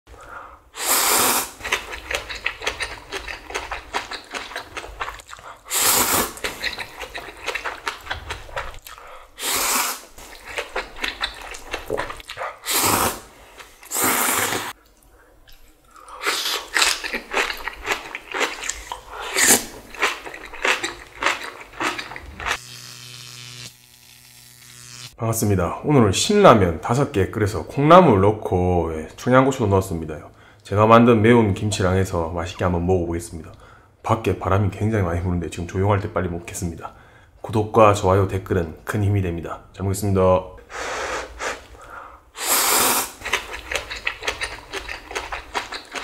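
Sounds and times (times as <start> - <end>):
person slurping noodles: 0.8 - 14.8, 16.0 - 22.6, 40.7 - 41.7, 42.4 - 46.0
wet chewing and smacking: 1.6 - 5.7, 6.3 - 9.0, 10.1 - 12.6, 14.7 - 22.6, 43.2 - 46.0.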